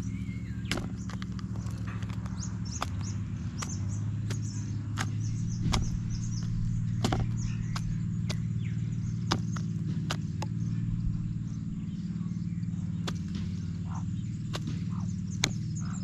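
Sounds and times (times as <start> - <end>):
steady low hum: 0.0 - 16.0
beak pecking plastic tray: 0.6 - 8.5.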